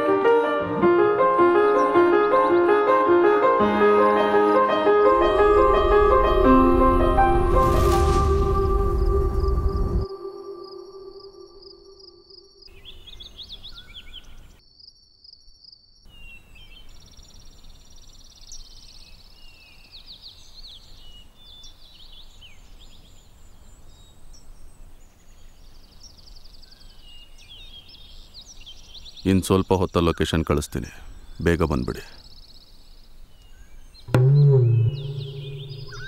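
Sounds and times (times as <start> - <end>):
held musical tone: 0.0 - 11.9, 34.1 - 36.0
low rumble: 5.1 - 10.1, 34.1 - 36.0
small birds chirping: 12.6 - 15.4, 16.1 - 36.0.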